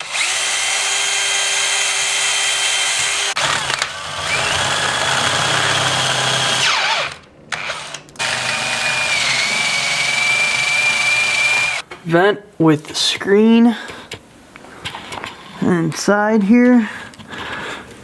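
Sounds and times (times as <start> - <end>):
cordless drill whining: 0.0 - 11.8.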